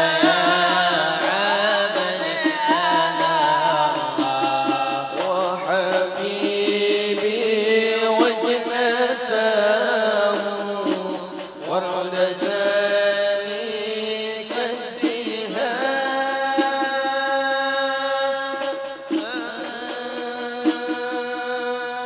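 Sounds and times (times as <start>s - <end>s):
frame drum strokes: 0.0s - 9.3s
men singing devotional song: 0.0s - 22.0s.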